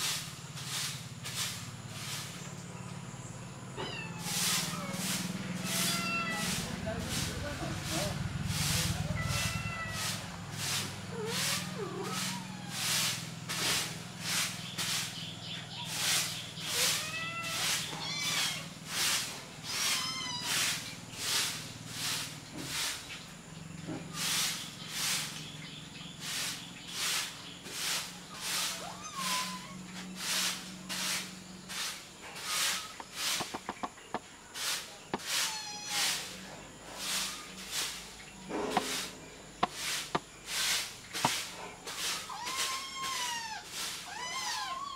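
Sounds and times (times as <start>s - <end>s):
kittens mewing: 3.8s - 6.7s, 8.6s - 13.3s, 15.8s - 18.8s, 19.6s - 20.8s, 28.4s - 30.4s, 35.2s - 36.4s, 42.0s - 44.9s
pulsing high hiss: 26.2s - 33.9s.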